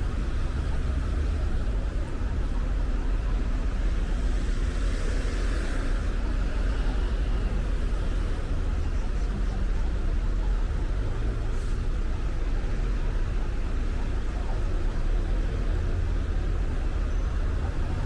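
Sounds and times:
road and engine rumble: 0.0s - 18.0s.

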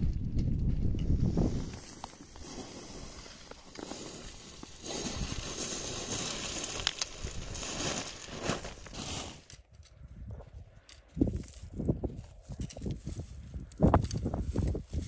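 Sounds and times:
footsteps crunching on scree: 0.0s - 9.5s
small stones clattering: 1.1s - 9.5s.

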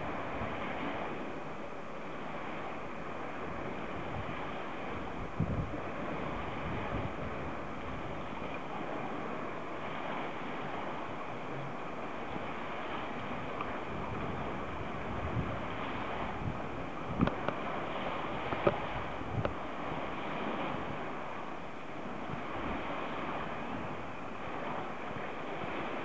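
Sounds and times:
lake water washing: 0.0s - 26.0s
wind on microphone: 0.0s - 26.0s.

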